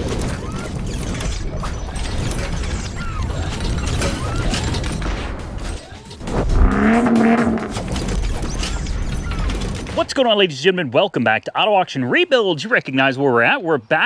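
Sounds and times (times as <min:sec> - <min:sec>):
ratcheting and clanking machine parts: 0:07.6 - 0:10.2.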